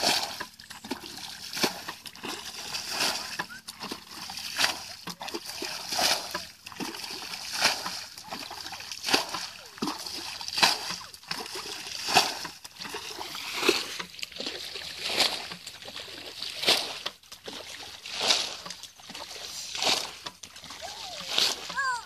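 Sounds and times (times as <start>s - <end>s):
water splashing from bucket: 0.0s - 22.0s.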